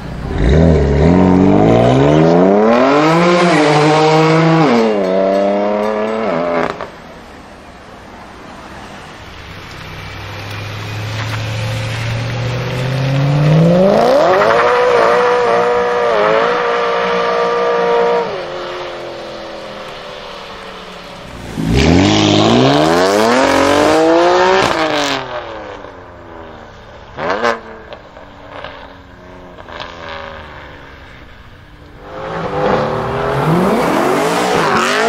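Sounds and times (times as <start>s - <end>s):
car engine accelerating hard: 10.4s - 20.0s, 21.2s - 25.8s, 32.0s - 35.0s.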